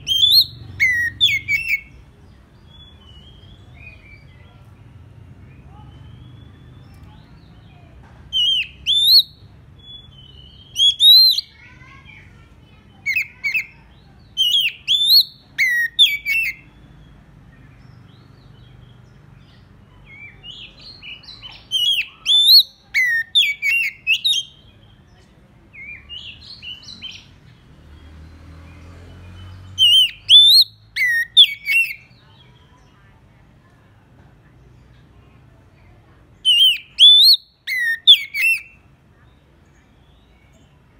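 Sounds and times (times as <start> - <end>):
bird singing whistled phrases: 0.0 - 1.9, 8.3 - 11.6, 13.1 - 16.7, 20.2 - 24.7, 29.8 - 32.2, 36.4 - 38.8.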